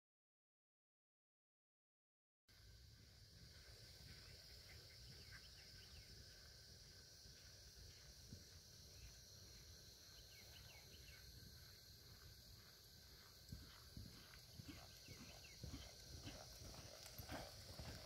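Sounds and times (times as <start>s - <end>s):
high-pitched insect chorus: 2.5s - 18.0s
low outdoor rumble: 10.3s - 18.0s.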